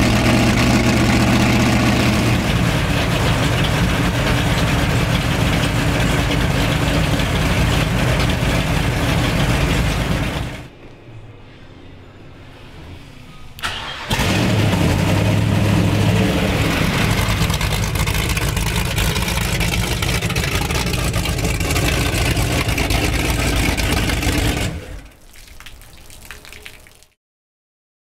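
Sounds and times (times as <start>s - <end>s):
boat engine idling: 0.0s - 10.7s, 15.1s - 25.2s.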